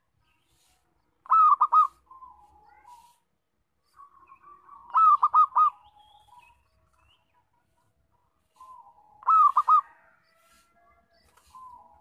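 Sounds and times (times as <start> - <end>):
dove cooing: 1.2 - 2.4, 4.7 - 6.0, 8.6 - 10.1.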